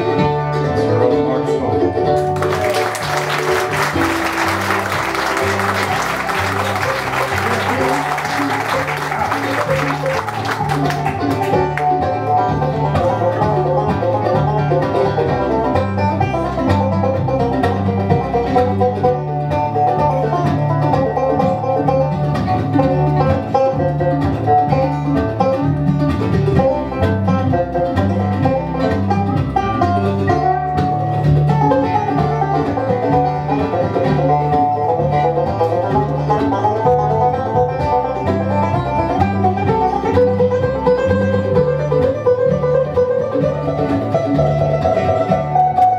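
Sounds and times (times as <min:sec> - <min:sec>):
acoustic guitar: 0:00.0 - 0:45.9
banjo: 0:00.0 - 0:45.9
mandolin: 0:00.0 - 0:45.9
upright bass: 0:00.0 - 0:45.9.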